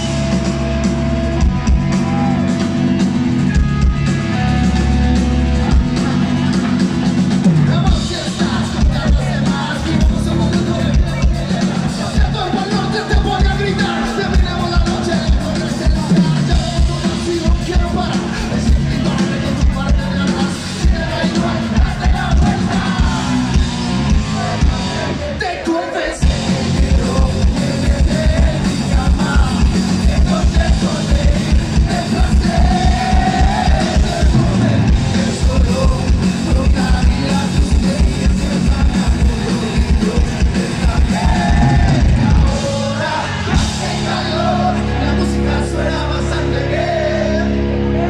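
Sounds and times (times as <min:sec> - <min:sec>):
fast kick-drum beat: 0:00.0 - 0:25.1, 0:26.2 - 0:44.3
live rock band playing: 0:00.0 - 0:48.0
person singing: 0:24.3 - 0:48.0.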